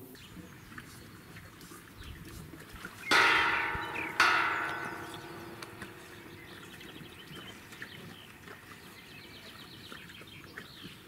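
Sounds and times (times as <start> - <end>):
metallic clangs ringing: 3.1 - 7.6.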